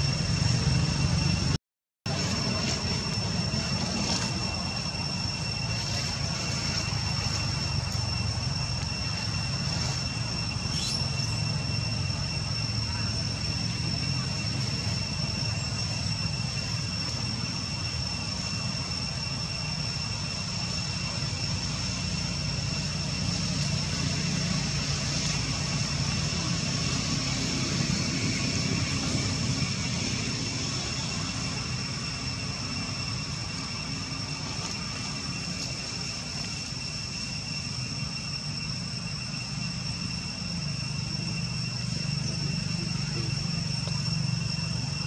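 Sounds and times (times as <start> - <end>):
steady high-pitched tones: 0.0 - 45.0
brief rising chirp: 10.0 - 12.6.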